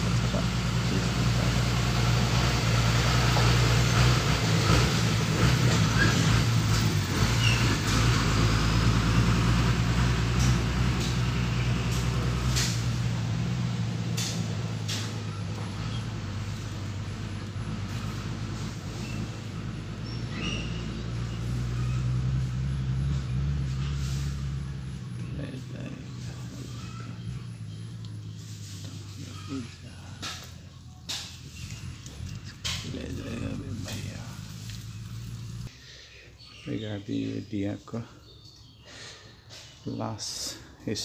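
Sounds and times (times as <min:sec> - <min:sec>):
heavy engine humming: 0:00.0 - 0:35.8.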